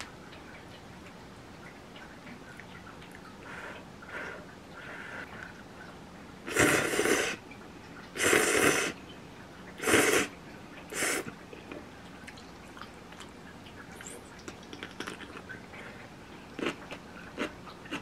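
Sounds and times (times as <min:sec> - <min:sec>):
slurping noodles: 0:06.5 - 0:07.4, 0:08.2 - 0:09.0, 0:09.8 - 0:10.3
person blowing on noodles: 0:08.2 - 0:09.0, 0:09.8 - 0:10.3.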